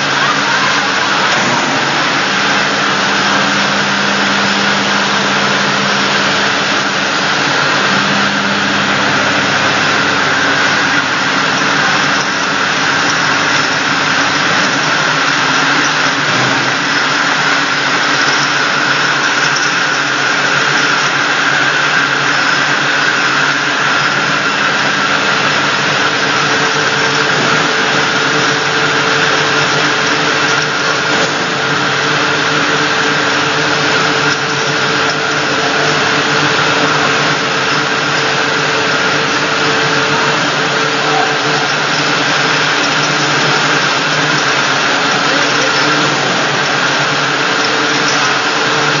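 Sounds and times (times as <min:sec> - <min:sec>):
bottle washing machine running: 0:00.0 - 0:49.0.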